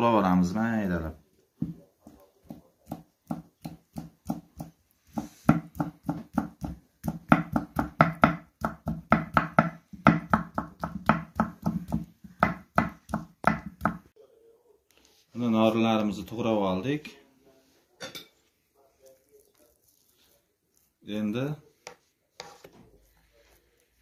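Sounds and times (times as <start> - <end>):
knife chopping on wooden board: 2.0 - 14.1.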